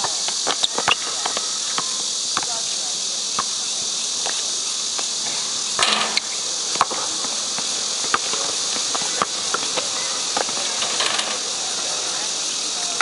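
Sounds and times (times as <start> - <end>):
sneakers squeaking on court: 0.0 - 2.7, 3.4 - 13.0
insect chorus: 0.0 - 13.0
basketball bouncing: 0.4 - 2.6, 5.8 - 12.0.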